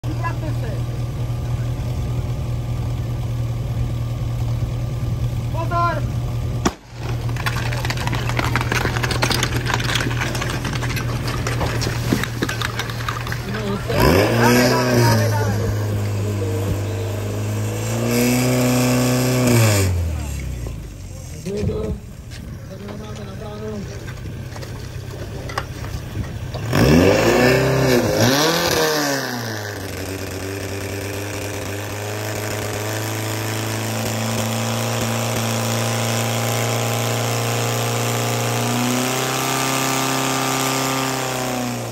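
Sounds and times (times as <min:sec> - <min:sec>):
fire pump engine running: 0:00.0 - 0:19.4, 0:20.0 - 0:28.7, 0:29.3 - 0:41.9
starting pistol bang: 0:06.6 - 0:07.6
running feet on paving: 0:06.6 - 0:14.2
engine knocks: 0:06.6 - 0:14.6, 0:21.4 - 0:27.0.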